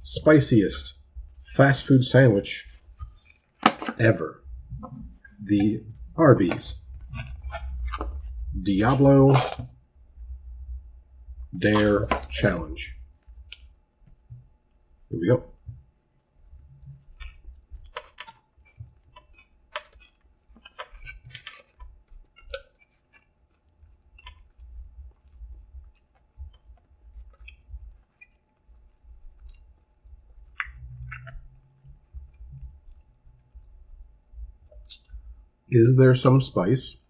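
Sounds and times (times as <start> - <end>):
man chewing food: 2.2 - 35.7
wet mouth clicks: 27.2 - 28.5, 29.4 - 29.8, 30.4 - 33.0.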